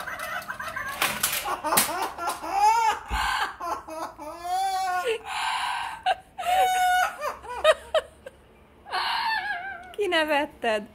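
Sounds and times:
parrot imitating laughter: 0.0s - 5.2s.

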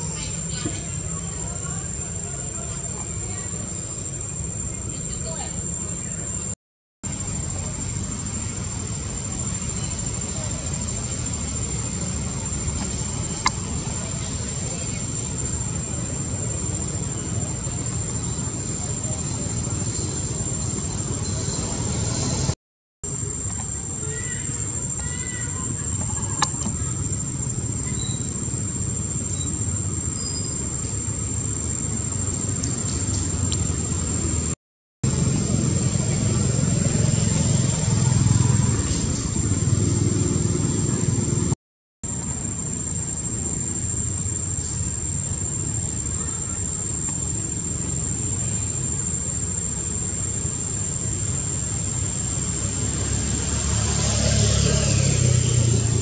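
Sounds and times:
faint high chirps: 0.0s - 34.0s
engine low rumble: 0.0s - 56.0s
thin high whine: 0.0s - 56.0s.

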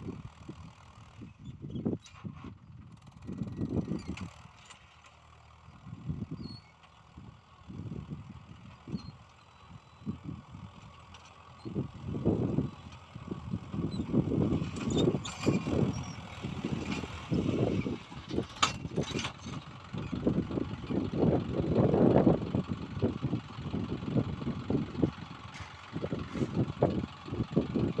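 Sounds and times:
tractor engine running under load: 0.0s - 28.0s.

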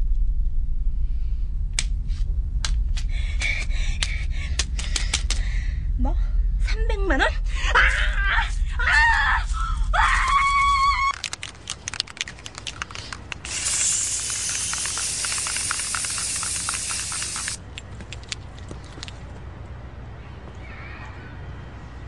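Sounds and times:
girl screaming: 7.8s - 11.2s
scattered clicks: 11.1s - 19.2s
steady hiss: 13.3s - 17.6s.

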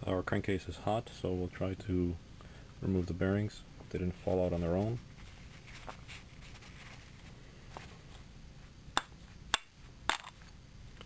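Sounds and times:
paper towel rustling: 4.4s - 8.3s.

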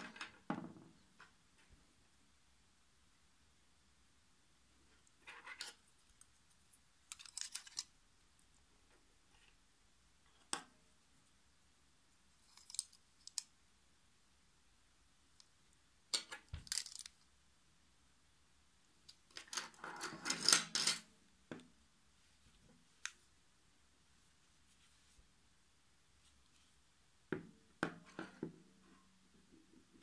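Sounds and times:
plastic combs clicking and clattering: 7.0s - 7.9s, 12.4s - 13.5s, 16.2s - 17.2s.

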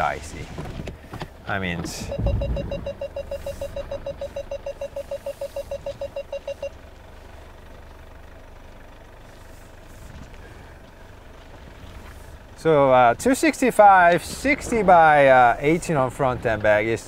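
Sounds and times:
low engine hum: 0.0s - 17.0s
parking sensor beeping rapidly: 1.9s - 6.8s.

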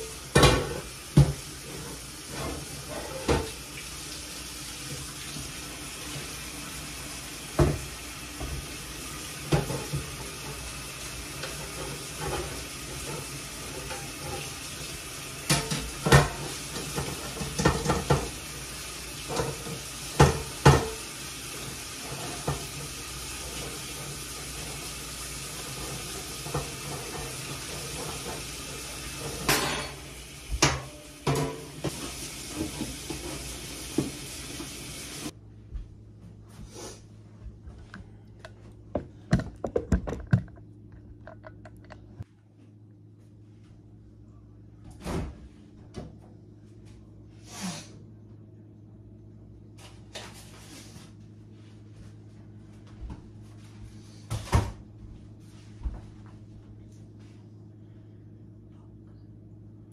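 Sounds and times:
tap water running into sink: 0.0s - 29.6s, 30.2s - 35.3s, 39.0s - 42.2s
dishes knocking and clinking: 15.5s - 18.4s, 19.3s - 21.0s, 37.8s - 42.2s.

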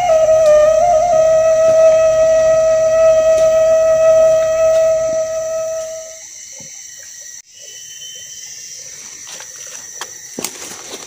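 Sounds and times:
flute music: 0.0s - 6.3s
high-pitched insect drone: 0.0s - 11.0s.

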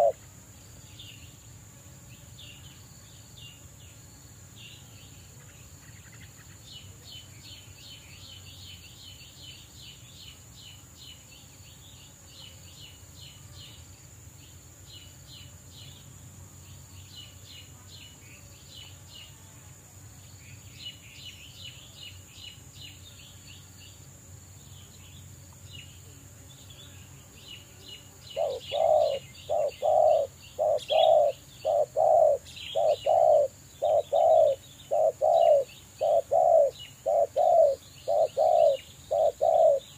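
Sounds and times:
dove cooing: 0.0s - 0.2s, 28.3s - 39.9s
steady high insect hum: 0.0s - 39.9s.

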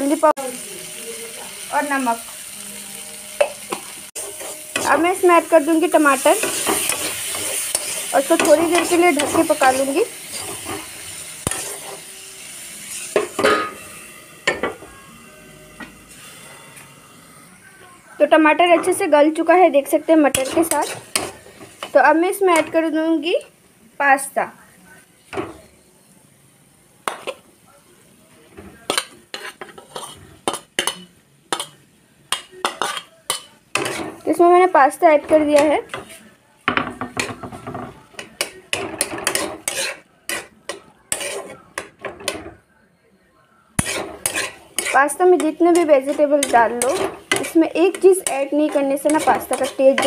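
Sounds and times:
vegetables sizzling in a pan: 0.0s - 42.3s, 43.8s - 50.0s
metal spatula scraping: 3.4s - 14.9s, 19.8s - 22.9s, 28.6s - 34.5s, 36.9s - 42.4s, 43.8s - 50.0s
metal plate clanking on pan: 6.3s - 12.0s, 13.2s - 14.9s, 36.7s - 40.5s, 43.8s - 50.0s.

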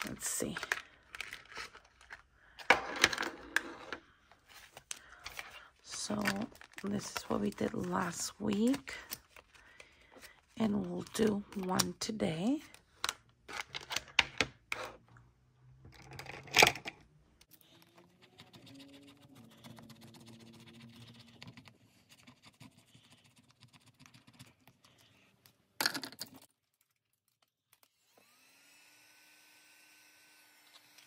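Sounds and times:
scratching scratch-off card: 17.6s - 24.6s
small electric motor humming: 27.9s - 31.0s.

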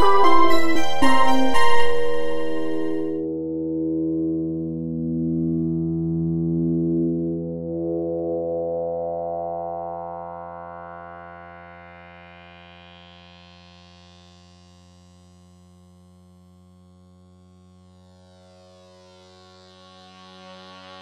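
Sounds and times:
low electronic drone: 0.0s - 13.7s.

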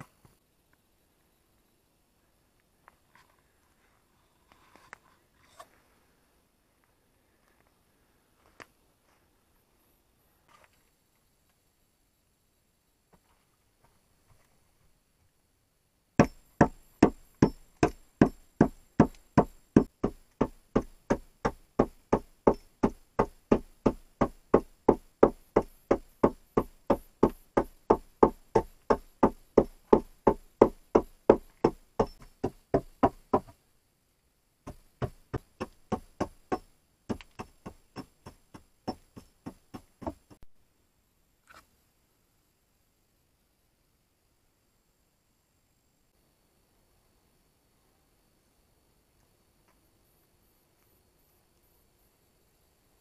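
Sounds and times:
hammer knocking on log frame: 16.2s - 33.6s, 34.7s - 40.5s.

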